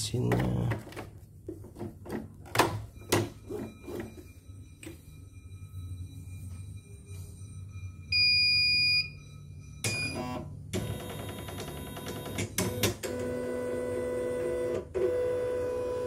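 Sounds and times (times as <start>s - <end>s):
high start-up beep: 2.9s - 12.3s.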